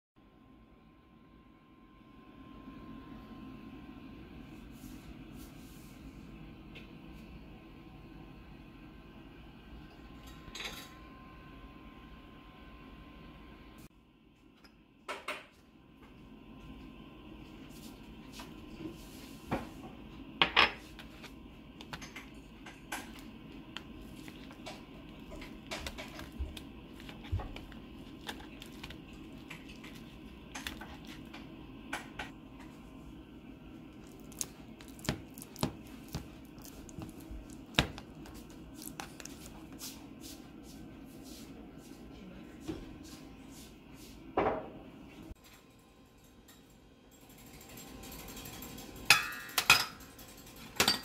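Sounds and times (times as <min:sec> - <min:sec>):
fork mashing bananas: 0:20.8 - 0:32.8, 0:33.9 - 0:40.5.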